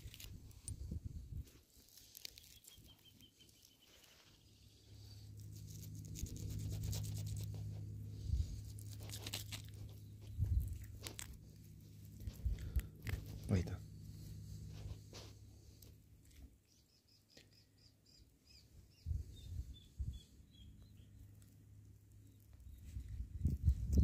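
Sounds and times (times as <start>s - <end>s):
steady low rumble: 0.0s - 1.8s, 4.4s - 16.6s, 18.7s - 24.0s
bait scratching against stone: 5.5s - 7.8s.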